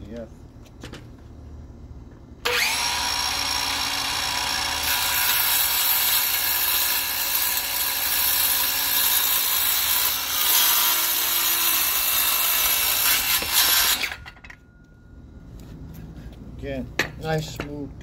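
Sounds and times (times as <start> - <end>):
circular saw spinning up: 2.4 - 6.4
circular saw cutting wood: 2.4 - 14.4.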